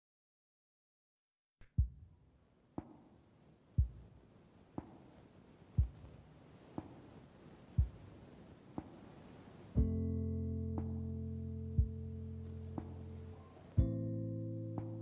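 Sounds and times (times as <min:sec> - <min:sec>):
soft deep thumping beat: 0:01.6 - 0:02.1, 0:03.8 - 0:04.2, 0:05.8 - 0:07.1, 0:07.7 - 0:09.2, 0:09.8 - 0:15.0
faint hiss: 0:02.8 - 0:15.0.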